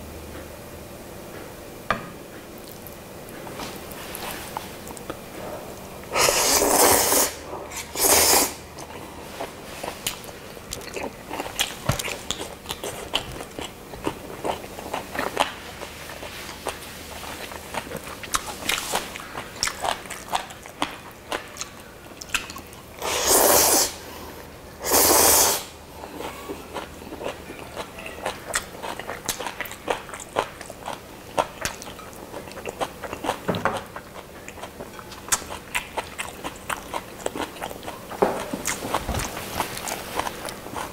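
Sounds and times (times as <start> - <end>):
noodle slurping: 6.1 - 8.6
chewing: 7.7 - 23.0, 26.0 - 40.9.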